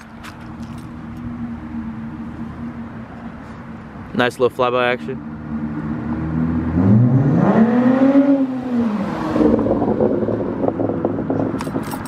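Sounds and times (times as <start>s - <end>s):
car exhaust accelerating past: 5.4s - 11.6s.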